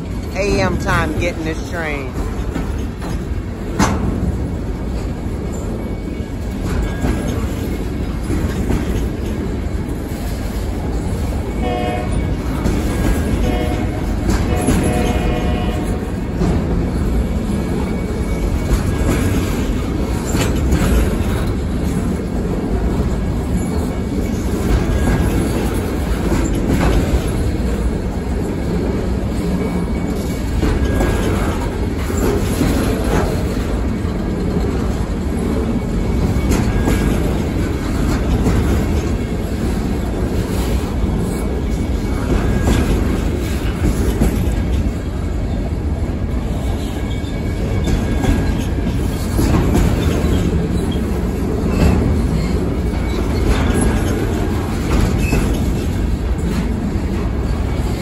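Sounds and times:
freight train rumbling: 0:00.0 - 0:58.0
faint high wheel squeal: 0:46.7 - 0:49.3.

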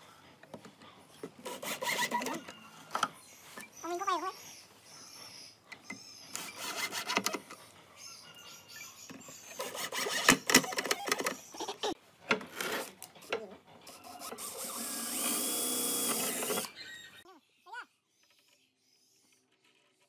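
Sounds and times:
drill driving screws: 0:06.3 - 0:07.4, 0:09.6 - 0:11.1, 0:14.1 - 0:16.7.

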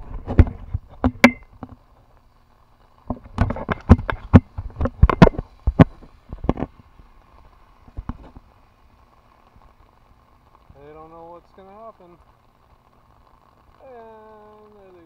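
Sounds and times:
faint rain hiss: 0:00.0 - 0:15.0
raindrops tapping on microphone: 0:00.0 - 0:15.0.

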